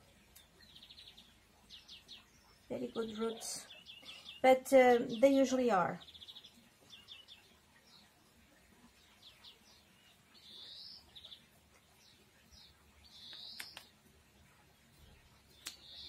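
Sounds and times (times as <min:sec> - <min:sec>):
small birds chirping: 0:00.0 - 0:16.0
faint clicks: 0:13.2 - 0:14.0, 0:15.6 - 0:15.8.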